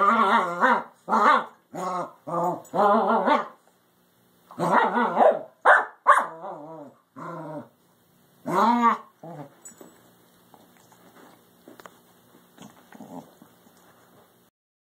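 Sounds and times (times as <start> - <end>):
dogs growling and barking: 0.0 - 3.6, 4.5 - 7.8, 8.4 - 9.9, 12.6 - 13.6.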